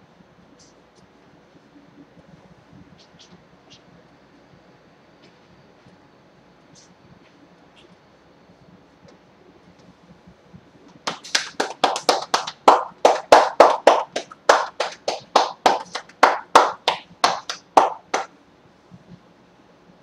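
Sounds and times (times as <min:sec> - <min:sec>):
hands slapping a back: 0:11.1 - 0:18.3.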